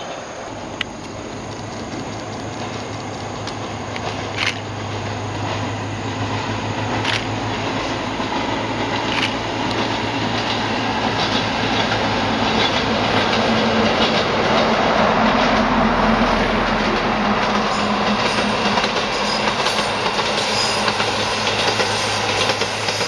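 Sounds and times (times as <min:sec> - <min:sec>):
diesel train approaching: 0:00.0 - 0:23.0
sharp clicks: 0:00.8 - 0:04.7, 0:09.0 - 0:09.9.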